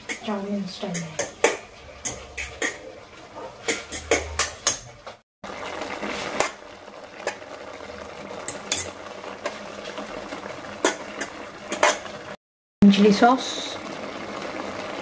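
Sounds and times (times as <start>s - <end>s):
metal spoon scraping a pan: 0.0s - 5.2s, 8.5s - 9.6s, 10.8s - 12.1s.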